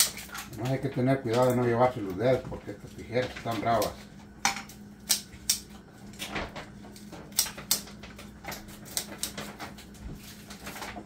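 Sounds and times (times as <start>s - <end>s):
scissors snipping dried meat: 6.9s - 10.0s.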